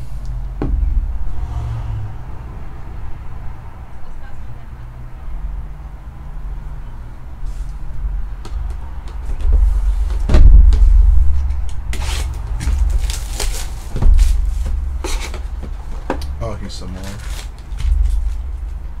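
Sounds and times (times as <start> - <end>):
plastic shrink wrap crinkling: 12.7 - 15.4, 17.0 - 18.5.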